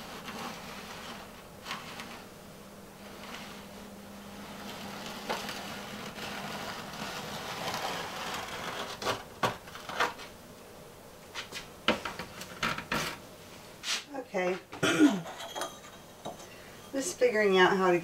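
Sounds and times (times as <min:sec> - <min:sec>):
tile scraping against surface: 0:00.0 - 0:02.3, 0:03.0 - 0:10.3.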